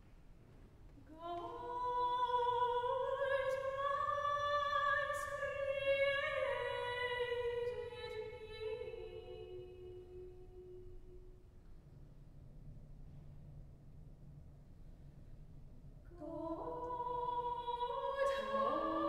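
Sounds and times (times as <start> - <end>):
soprano voice singing: 1.1 - 10.8, 16.1 - 19.0.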